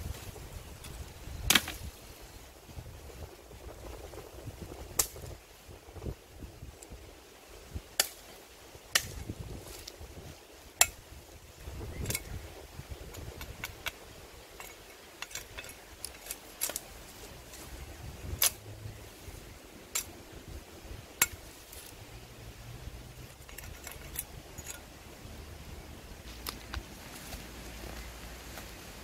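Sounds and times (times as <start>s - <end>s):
leaves rustling: 0.0s - 29.0s
cleaver chopping branch: 1.5s - 1.9s, 8.0s - 8.3s, 9.0s - 9.9s, 18.4s - 18.6s.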